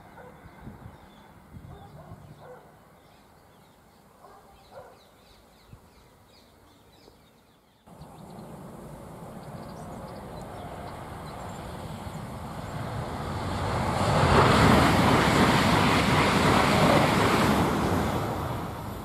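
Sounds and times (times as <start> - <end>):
birds chirping: 0.2 - 13.2
high-speed train rushing: 7.9 - 19.0.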